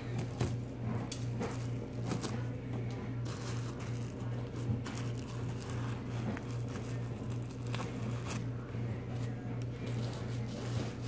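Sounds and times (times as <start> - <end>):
steady low hum: 0.0 - 11.0
plastic bag crinkling: 3.2 - 11.0.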